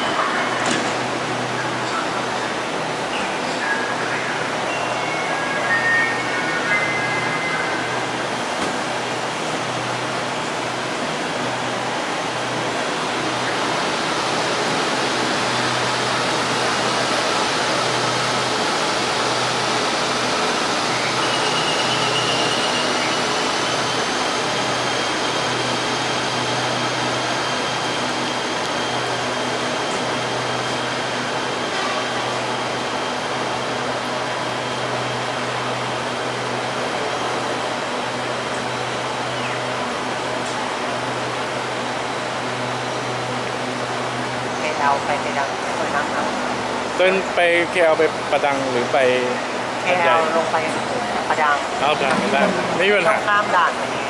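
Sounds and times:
train air conditioning humming: 0:00.0 - 0:54.0
thin high whine: 0:03.6 - 0:08.3.

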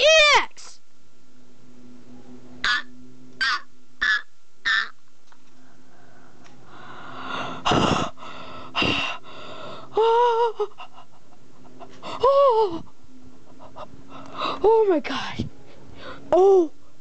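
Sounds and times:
high-pitched wordless cries: 0:00.0 - 0:00.8
person gasping: 0:05.6 - 0:10.9.

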